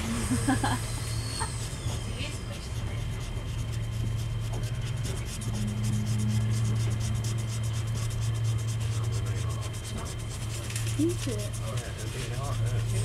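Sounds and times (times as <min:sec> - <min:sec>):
train carriage hum: 0:00.0 - 0:13.0
pen scratching on paper: 0:01.5 - 0:13.0.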